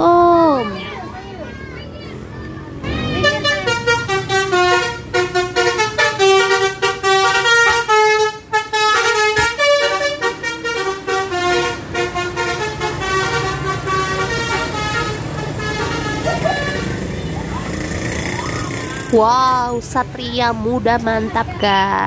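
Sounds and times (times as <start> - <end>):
multi-tone air horn tune: 2.9 - 17.0.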